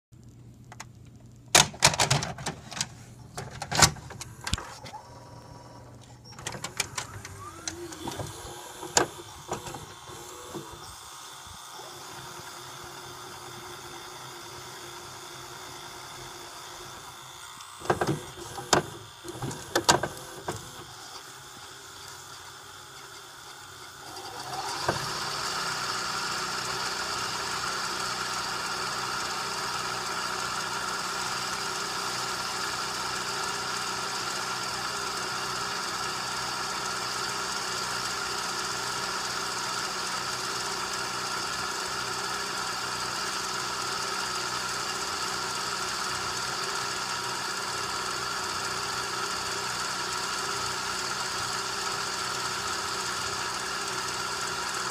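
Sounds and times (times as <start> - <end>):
tape transport clicks and clunks: 0.2 - 11.0, 17.6 - 21.3
videotape winding whir: 0.2 - 54.9.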